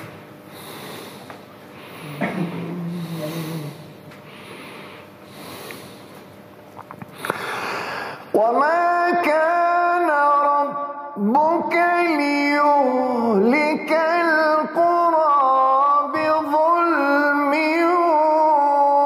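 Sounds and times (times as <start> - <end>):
breathing close to microphone: 0.5 - 6.2, 7.1 - 8.4
low voice held: 2.1 - 3.8.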